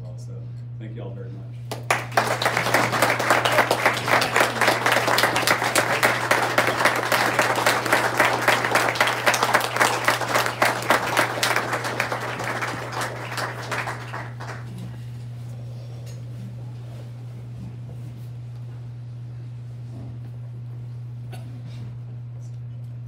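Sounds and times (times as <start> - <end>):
audience applauding: 1.7 - 15.0.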